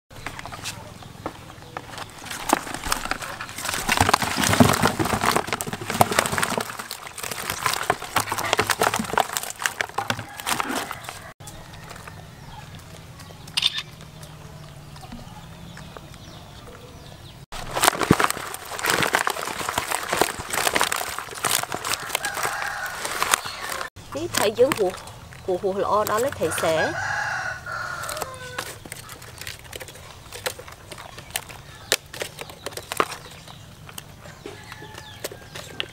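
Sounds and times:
wet fish slapping against plastic: 2.3 - 11.3, 17.6 - 25.0.

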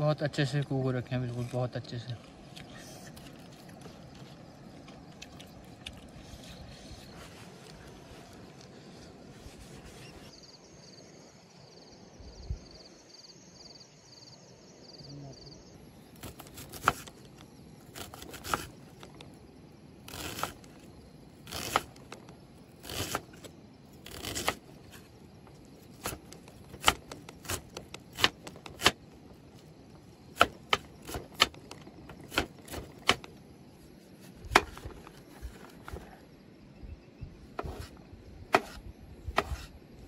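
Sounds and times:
blade chopping on wood: 16.2 - 17.2, 17.9 - 18.7, 20.1 - 20.7, 21.5 - 22.2, 22.8 - 24.6, 25.9 - 29.0, 30.3 - 33.3, 34.4 - 35.1, 38.5 - 39.7.

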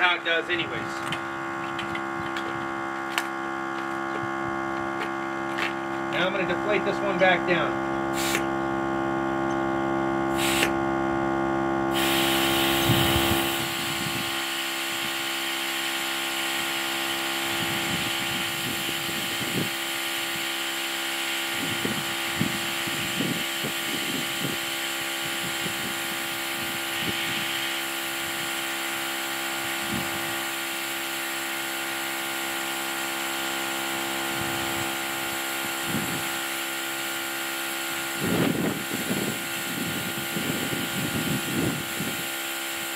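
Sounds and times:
low hum: 0.0 - 14.3
air compressor whine and hiss: 0.0 - 42.9.

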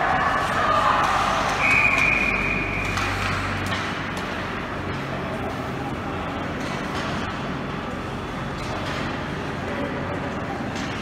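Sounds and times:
referee's whistle: 1.6 - 3.0.

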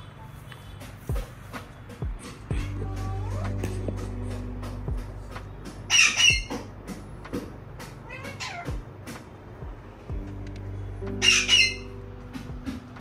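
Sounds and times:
background music: 0.0 - 13.0
parrot screeching: 5.9 - 6.6, 8.0 - 8.7, 11.2 - 11.9.

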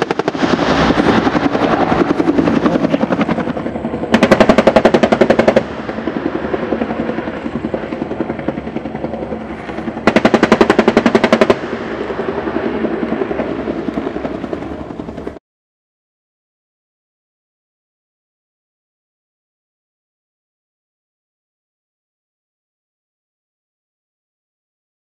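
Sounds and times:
rotary cannon bursts: 0.0 - 8.0, 9.4 - 12.7
helicopter rotor beat: 0.0 - 15.4.

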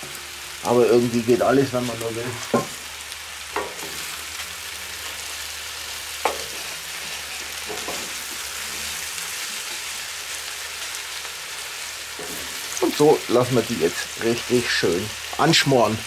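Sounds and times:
food sizzling in butter: 0.0 - 16.0.

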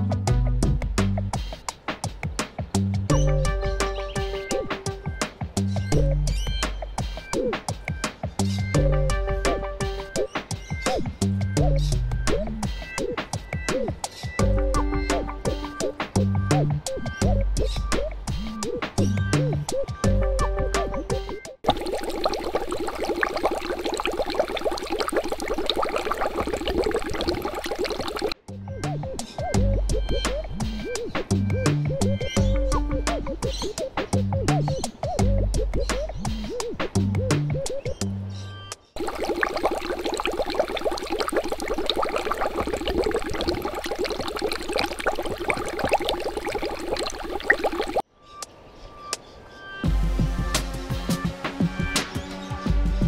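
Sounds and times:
water bubbling and gurgling: 21.6 - 28.4, 39.0 - 48.0.

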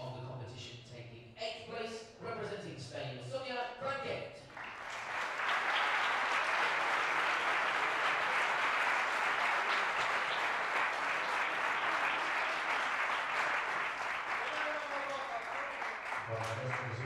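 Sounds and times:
crowd applauding: 4.5 - 17.0.

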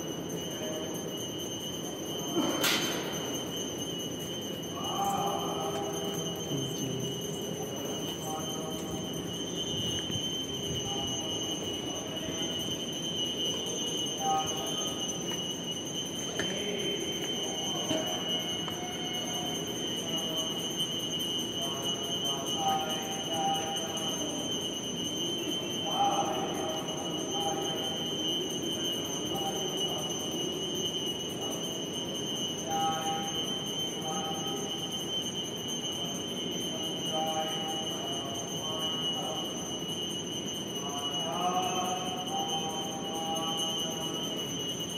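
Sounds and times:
temple bells ringing: 0.0 - 44.9
high-pitched whine: 1.8 - 20.9.

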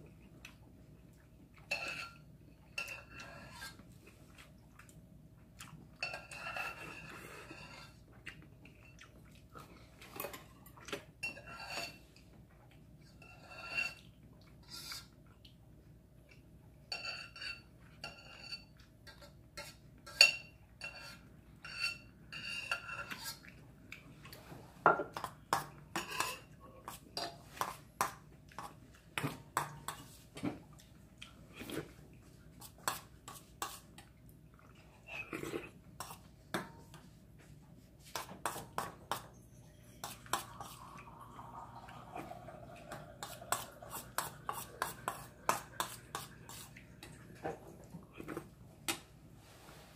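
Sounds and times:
spoon scraping metal bowl: 1.7 - 3.8, 6.0 - 8.0, 11.2 - 12.0, 13.1 - 15.2, 16.9 - 23.5, 25.2 - 27.8, 38.2 - 40.9, 42.8 - 46.8.

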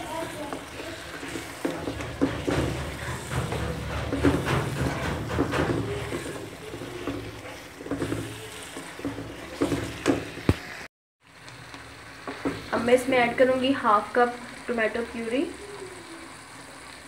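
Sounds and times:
spatula scraping and sloshing: 0.0 - 10.8
steady sizzle of frying: 0.0 - 17.0.

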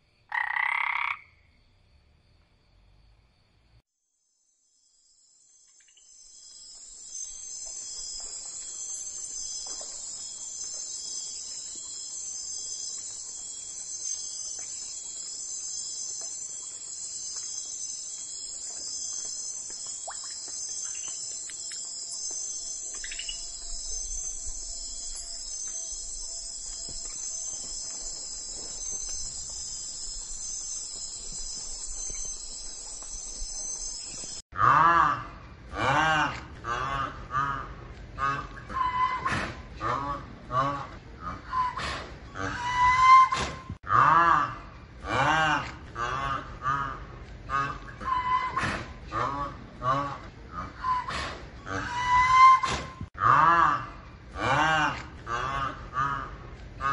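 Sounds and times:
insect trilling: 4.8 - 34.4.

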